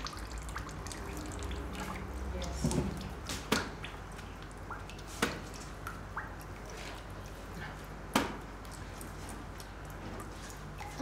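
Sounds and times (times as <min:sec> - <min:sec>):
faint dripping: 0:00.0 - 0:11.0.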